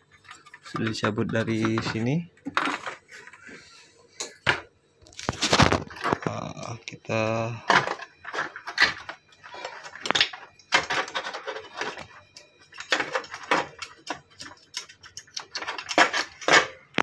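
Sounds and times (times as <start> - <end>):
plastic clicks and rattles: 9.8 - 17.0.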